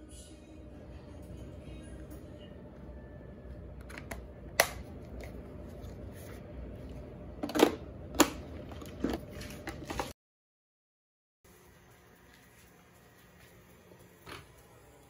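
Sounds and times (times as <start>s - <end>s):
low steady hum: 0.0s - 10.1s.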